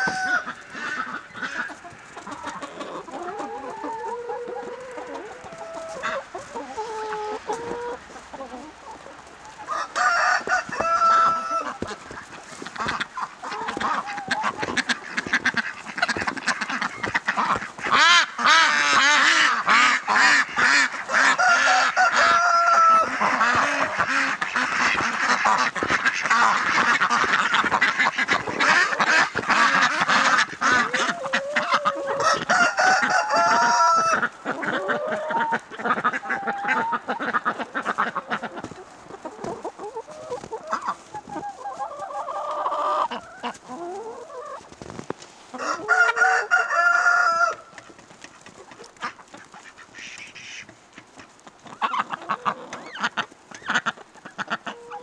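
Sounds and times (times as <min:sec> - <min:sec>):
ducks quacking: 0:00.0 - 0:44.7, 0:48.2 - 0:55.0
hens clucking: 0:00.0 - 0:55.0
goose honking: 0:09.7 - 0:38.7.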